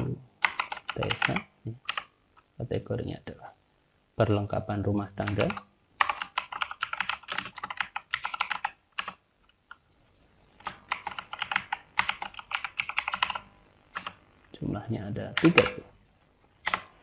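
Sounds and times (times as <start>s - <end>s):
computer keyboard typing: 0.0s - 2.1s, 5.2s - 9.2s, 10.6s - 14.2s, 15.4s - 15.8s, 16.6s - 16.9s.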